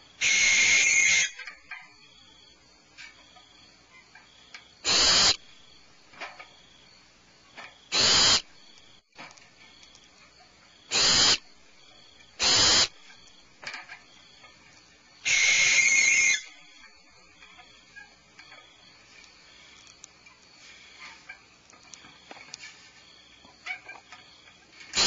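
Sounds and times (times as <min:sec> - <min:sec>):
owl hissing calls: 0:00.2 - 0:01.5, 0:04.8 - 0:05.4, 0:07.9 - 0:08.5, 0:10.9 - 0:11.5, 0:12.4 - 0:13.0, 0:15.2 - 0:16.6.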